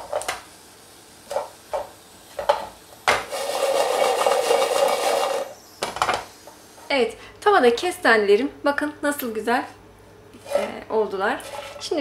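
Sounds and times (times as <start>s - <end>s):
chestnuts knocking in pan: 1.3s - 6.2s
chestnuts rattling in shaken pan: 3.3s - 5.5s.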